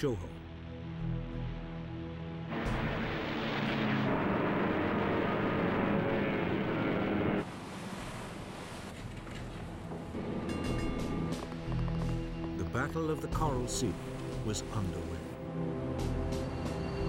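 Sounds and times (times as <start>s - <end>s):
faint background music: 0.0s - 2.5s, 9.7s - 17.0s
loud steady rushing noise: 2.5s - 8.4s.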